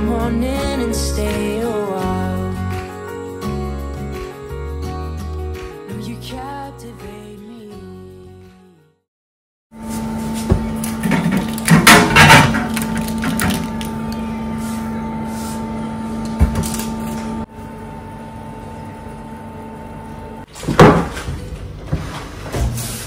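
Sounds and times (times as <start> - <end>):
countertop oven humming: 9.8 - 23.0
appliance rattling clunk: 11.0 - 13.7.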